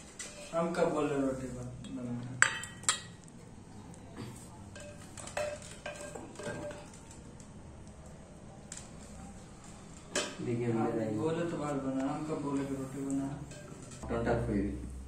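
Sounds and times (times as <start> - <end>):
steel ladle clinking on bowls: 1.8 - 3.2, 4.7 - 7.0, 13.4 - 14.0
light taps and scrapes: 11.2 - 14.0.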